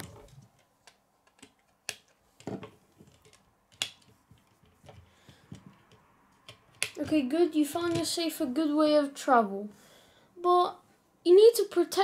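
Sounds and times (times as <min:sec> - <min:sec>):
plastic toy clicks and knocks: 0:00.0 - 0:08.2
toy handled on wooden tabletop: 0:00.0 - 0:08.3.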